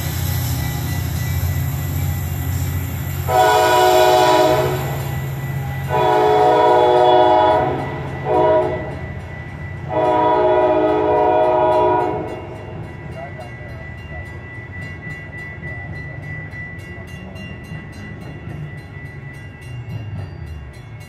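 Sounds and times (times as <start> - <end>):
train horn blasts: 3.2 - 9.2, 9.8 - 12.6.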